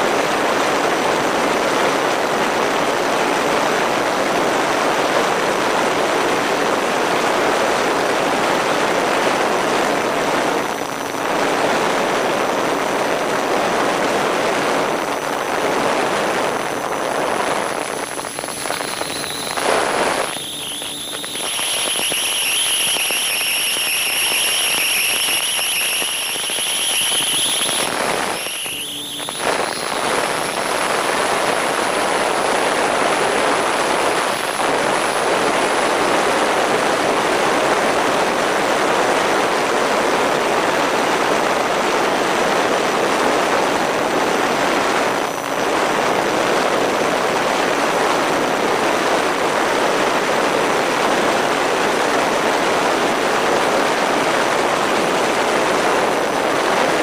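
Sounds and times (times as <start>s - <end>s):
propeller motor whine: 14.7s - 36.1s.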